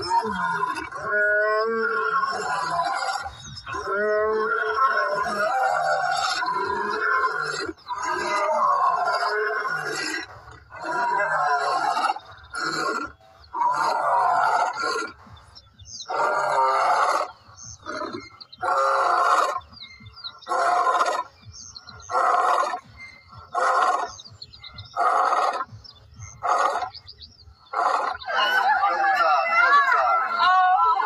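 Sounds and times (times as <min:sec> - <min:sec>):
lion roaring: 0:00.0 - 0:15.2.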